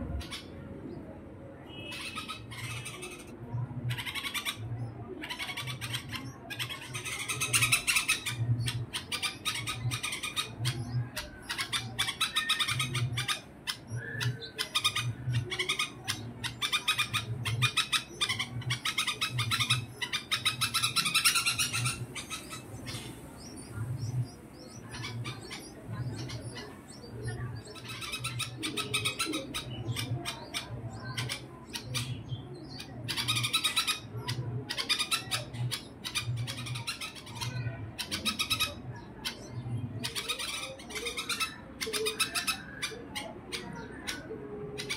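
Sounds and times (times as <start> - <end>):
birds chirping rapidly: 0.0 - 44.9.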